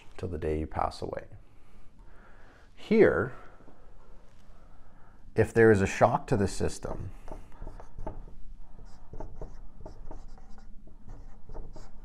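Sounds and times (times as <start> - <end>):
marker writing on whiteboard: 6.8 - 12.0.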